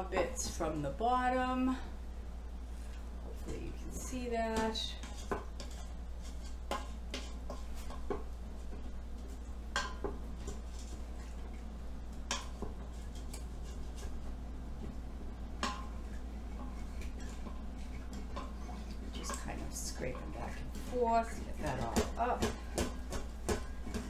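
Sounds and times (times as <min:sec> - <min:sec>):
wooden spoon scraping metal pot: 0:03.4 - 0:08.2, 0:12.3 - 0:14.2, 0:15.7 - 0:22.8.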